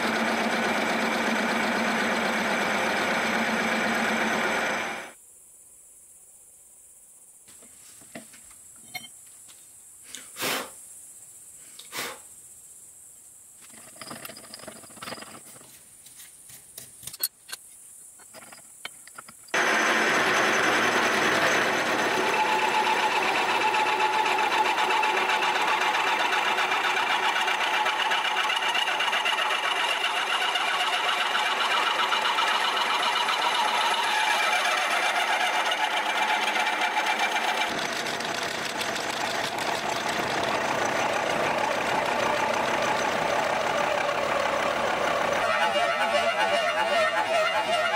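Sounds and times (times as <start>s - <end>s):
milling machine cutting metal: 0.0s - 5.1s, 19.6s - 47.9s.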